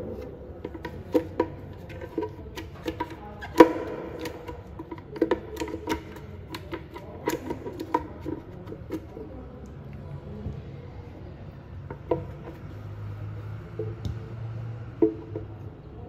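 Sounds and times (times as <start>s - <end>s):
spatula scraping plastic jar: 0.0s - 9.4s.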